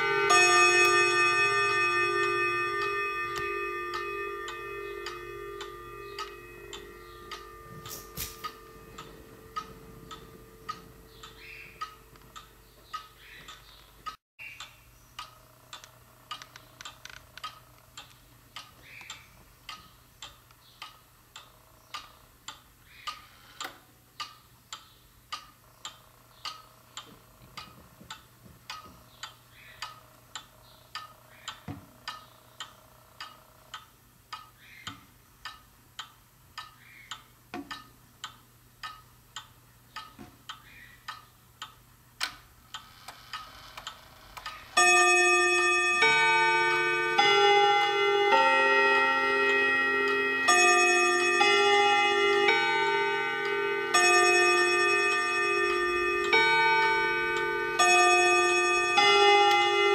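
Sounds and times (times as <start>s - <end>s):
pendulum clock ticking: 0.0s - 59.9s
clock click: 2.8s - 48.5s.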